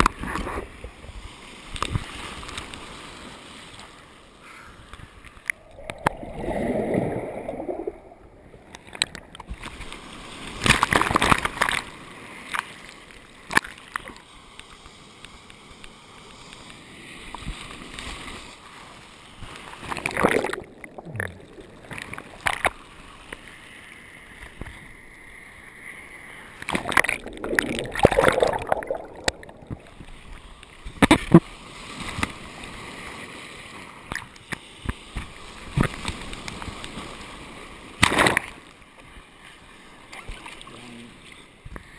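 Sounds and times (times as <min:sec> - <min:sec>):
water sloshing and gurgling: 0:05.0 - 0:14.2, 0:19.2 - 0:23.6, 0:26.4 - 0:41.4
hands paddling water: 0:19.5 - 0:22.8, 0:26.6 - 0:30.4
loud splashes: 0:26.7 - 0:30.2.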